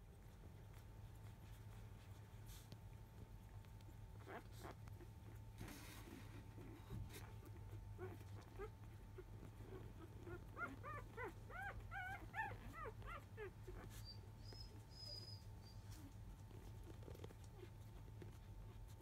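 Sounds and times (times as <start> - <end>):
dog whimpering: 6.8 - 17.8.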